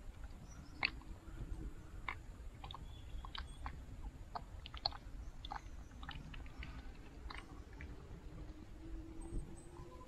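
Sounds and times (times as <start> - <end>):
small clicks and taps in water: 0.0 - 1.1, 2.0 - 8.0.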